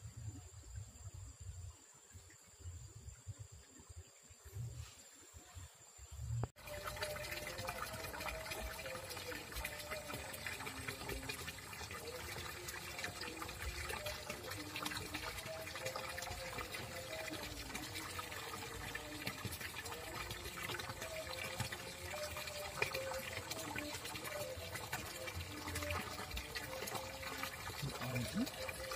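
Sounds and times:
water pouring into pool: 6.5 - 28.9.

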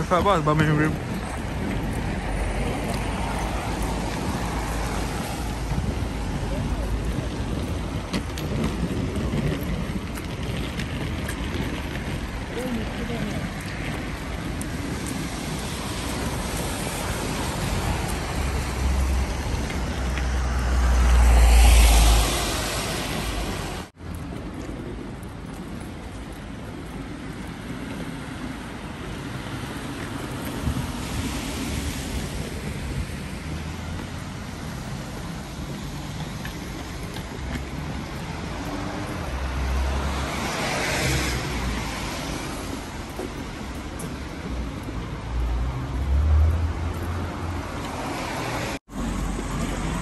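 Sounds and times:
steady traffic noise: 0.0 - 50.0
tyre hiss of passing cars: 15.0 - 23.9, 38.6 - 43.1.

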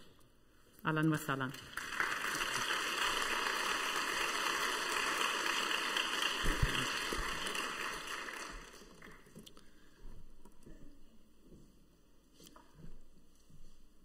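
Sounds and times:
audience applauding: 1.6 - 9.4.

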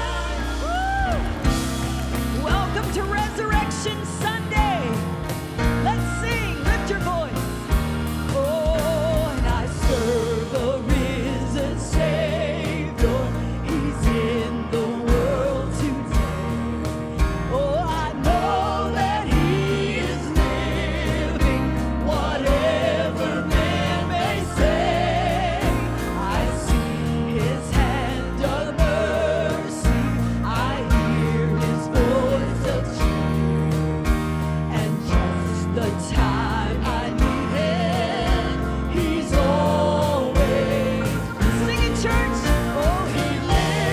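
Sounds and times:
woman singing with vibrato: 0.0 - 1.4, 8.3 - 16.5, 34.7 - 43.9
drums keeping a steady beat: 0.0 - 43.9
piano: 0.0 - 43.9.

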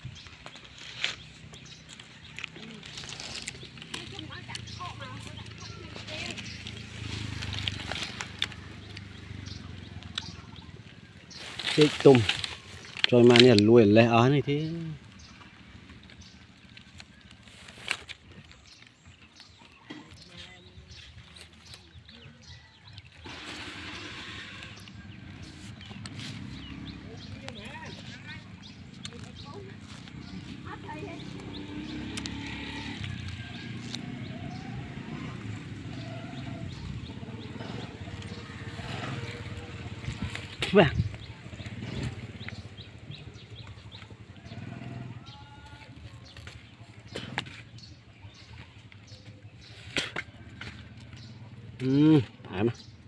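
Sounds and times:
low rumble with rapid flutter: 21.6 - 51.7.

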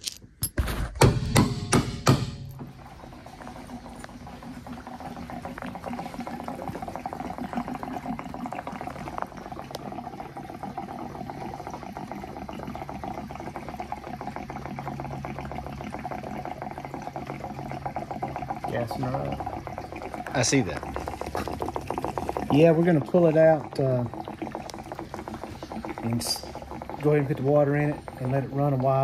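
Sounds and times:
sharp knocks: 0.5 - 2.7
gasoline pouring from can: 2.5 - 29.0.

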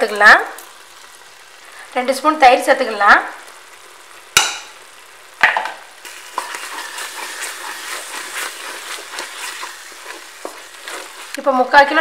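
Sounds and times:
masala sizzling in oil: 0.0 - 12.0
spoon scraping ticks: 6.1 - 11.4.

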